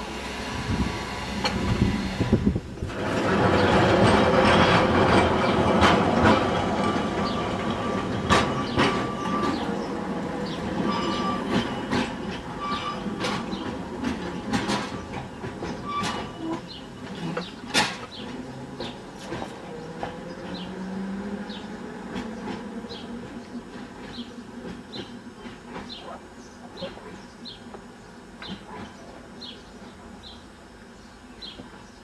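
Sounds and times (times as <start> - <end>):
electric tram rumbling: 0.0 - 32.0
tram wheels clicking over rail joints: 1.3 - 29.9
tram wheels squealing: 3.0 - 27.2.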